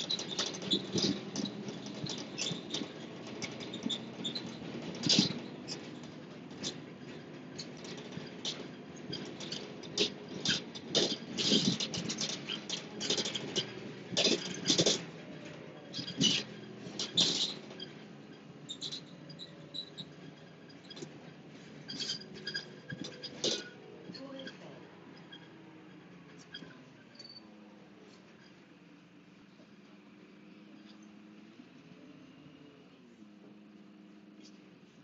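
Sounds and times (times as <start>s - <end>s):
light clicks and rattles: 0.0s - 27.4s
vehicle rumble from inside: 0.0s - 35.0s.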